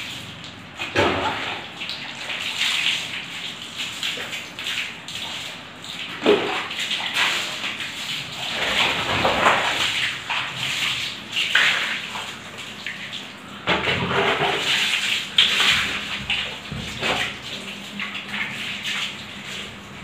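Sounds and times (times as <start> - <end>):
water splashing on tiled floor: 0.0 - 20.0.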